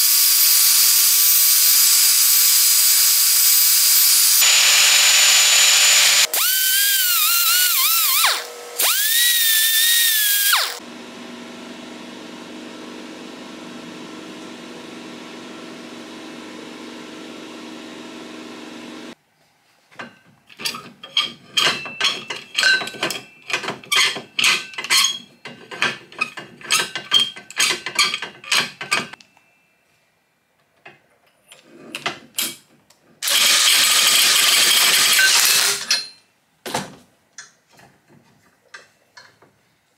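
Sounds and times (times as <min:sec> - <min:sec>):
power tool grinding steel: 0:00.0 - 0:10.8
cordless driver spinning: 0:04.2 - 0:10.8, 0:33.2 - 0:35.8
metal clamp clinking and clanking: 0:20.0 - 0:29.1.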